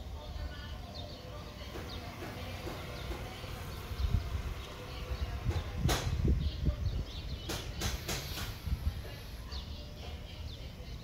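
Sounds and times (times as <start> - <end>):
wind rumble on microphone: 3.6 - 9.7.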